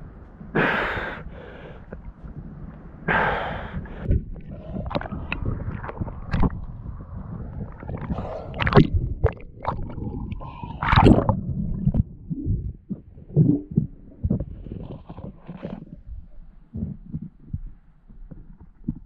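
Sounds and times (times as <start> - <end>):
water sloshing and gurgling: 0.2 - 19.0
muffled underwater bubbling: 3.1 - 19.0
knocks and splashes: 7.9 - 12.1.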